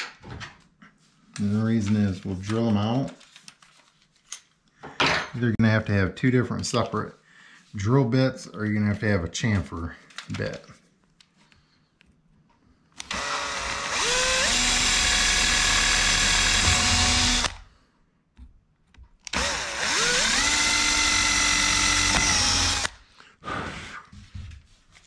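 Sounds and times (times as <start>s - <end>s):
power drill whining: 13.0s - 17.7s, 19.3s - 23.0s.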